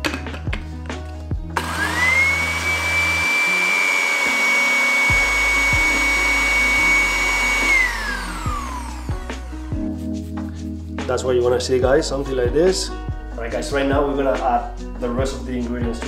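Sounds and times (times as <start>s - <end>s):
blender motor whine: 1.6s - 9.5s.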